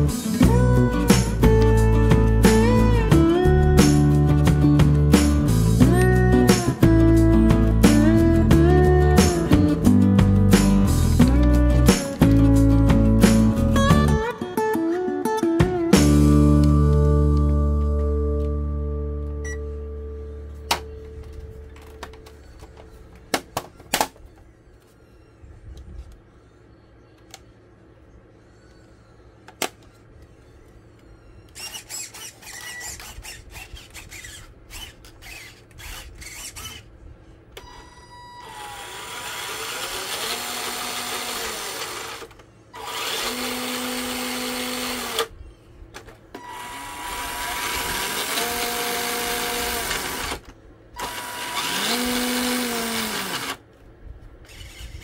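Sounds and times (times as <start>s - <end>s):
toy car motor whirring: 31.5s - 36.9s, 37.9s - 45.3s, 46.4s - 53.6s, 54.4s - 55.0s.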